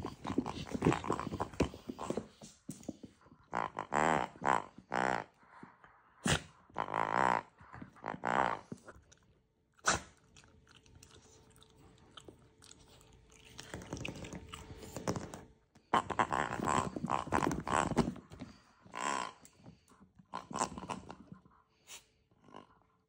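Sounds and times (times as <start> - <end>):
rubber pig toy grunting: 3.5 - 5.4, 6.2 - 8.8, 15.9 - 18.2, 18.9 - 19.5.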